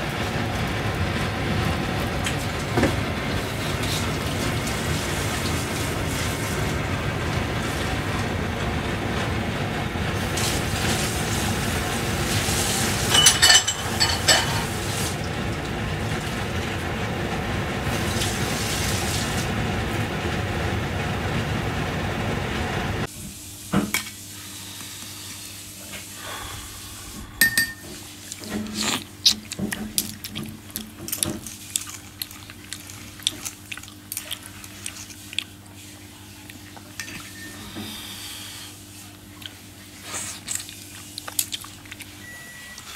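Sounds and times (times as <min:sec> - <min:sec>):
broth bubbling and hissing: 0:00.0 - 0:30.7.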